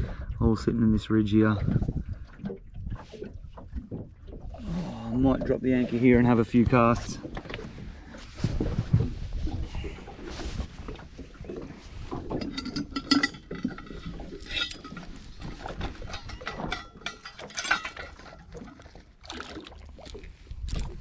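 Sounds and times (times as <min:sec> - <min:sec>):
anchor chain clinking: 0:12.3 - 0:18.9.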